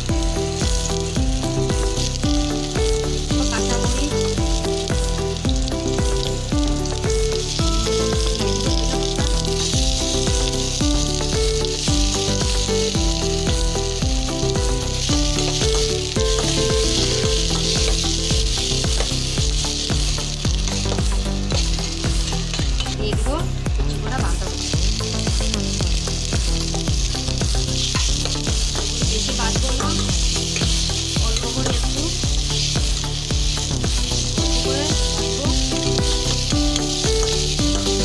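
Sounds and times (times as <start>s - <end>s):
background music with bass line: 0.0s - 38.0s
onions sizzling in a pan: 0.0s - 38.0s
metal spatula stirring: 0.3s - 23.0s, 24.5s - 38.0s.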